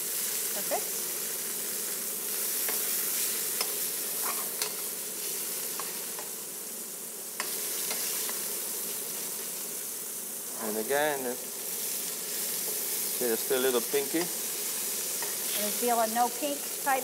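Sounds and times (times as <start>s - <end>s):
meat sizzling in hot oil: 0.0s - 17.0s
metal tongs clicking on pan: 3.6s - 4.8s.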